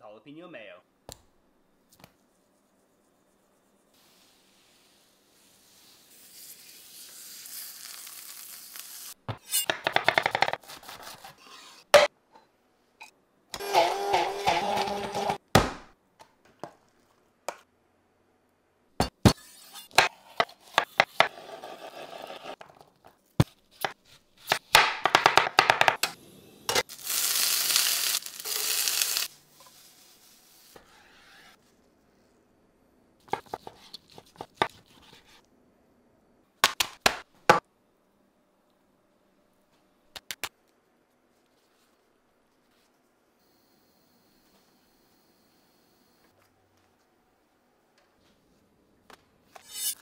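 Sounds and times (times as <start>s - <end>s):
vegetables sizzling in a hot pan: 6.9s - 9.2s, 26.8s - 29.3s
immersion blender: 13.6s - 15.4s.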